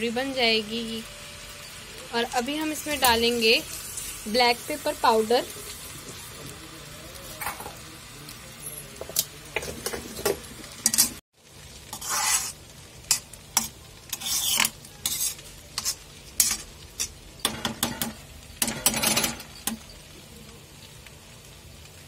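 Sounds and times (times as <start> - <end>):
noodles sizzling in a pan: 0.0 - 22.0
metal spoon scraping a pan: 9.6 - 11.2, 11.9 - 20.0.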